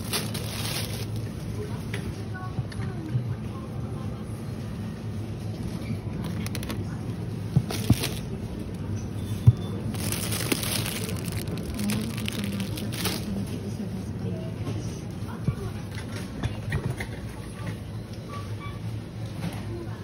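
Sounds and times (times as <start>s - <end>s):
plastic packaging crinkling: 0.0s - 1.4s, 6.2s - 7.0s, 7.6s - 8.8s, 9.8s - 13.6s
shopping cart rolling: 0.0s - 1.6s, 5.6s - 13.8s.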